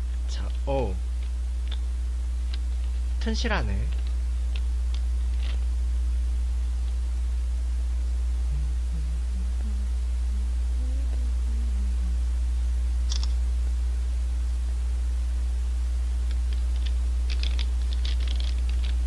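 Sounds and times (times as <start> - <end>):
steady low hum: 0.0 - 19.0
man humming a tune: 8.2 - 12.9.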